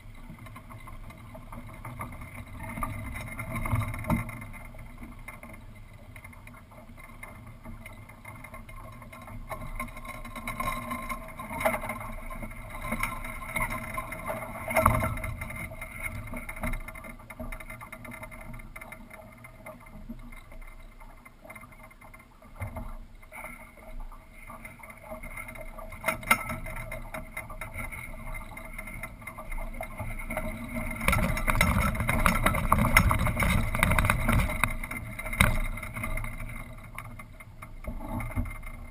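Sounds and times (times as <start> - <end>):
rush of wind and water: 29.9 - 36.4.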